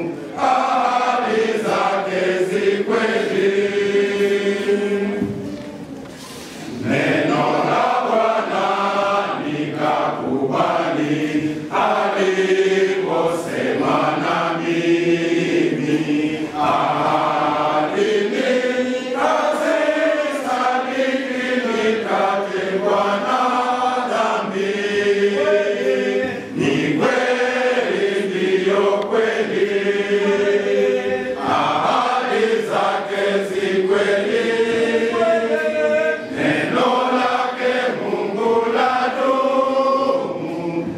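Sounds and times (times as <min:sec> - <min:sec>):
men's choir singing a hymn: 0:00.0 - 0:40.9.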